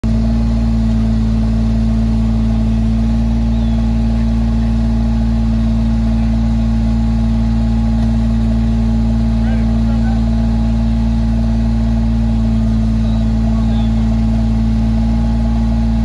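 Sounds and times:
machine engine droning: 0.0s - 16.0s.

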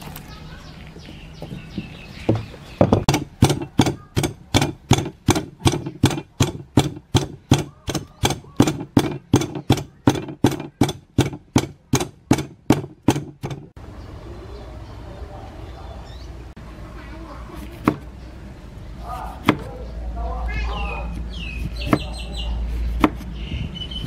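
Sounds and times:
pestle pounding in wooden mortar: 2.3s - 13.8s, 22.9s - 23.3s.

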